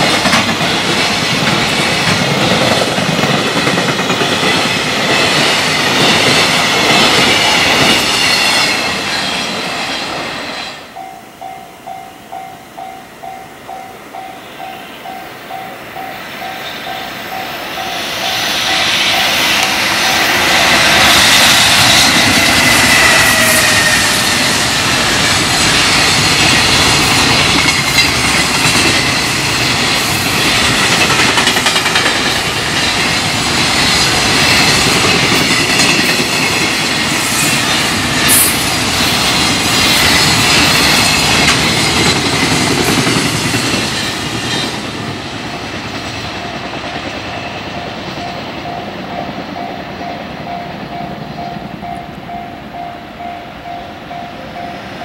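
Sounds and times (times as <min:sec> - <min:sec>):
freight train passing: 0:00.0 - 0:55.0
level crossing warning bell: 0:10.9 - 0:21.2, 0:45.5 - 0:55.0.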